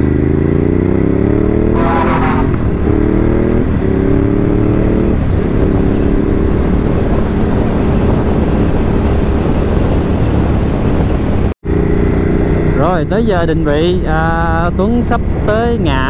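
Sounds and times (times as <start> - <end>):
motorcycle engine accelerating: 0.0 - 16.0
wind rushing: 1.6 - 12.8.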